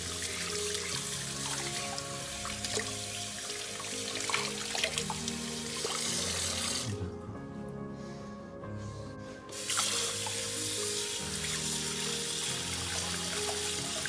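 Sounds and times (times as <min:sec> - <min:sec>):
water splashing: 0:00.0 - 0:07.2, 0:09.5 - 0:14.0
background music: 0:00.0 - 0:14.0
tap water running into sink: 0:09.5 - 0:14.0.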